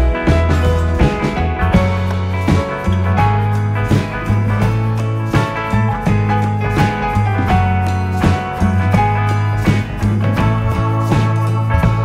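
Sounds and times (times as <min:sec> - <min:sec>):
guitar music with steady beat: 0:00.0 - 0:12.0.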